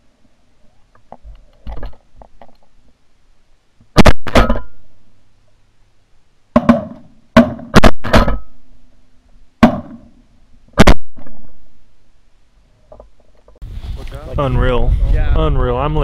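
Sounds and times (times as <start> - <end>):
shotgun blasts: 3.9 - 4.8, 6.6 - 8.6, 9.6 - 10.1, 10.8 - 11.6.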